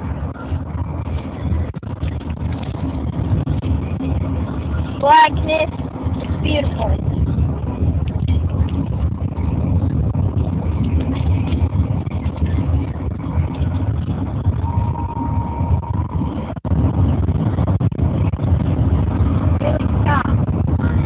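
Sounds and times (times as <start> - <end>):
road and engine rumble: 0.0 - 21.0
faint steady tone: 14.5 - 16.6.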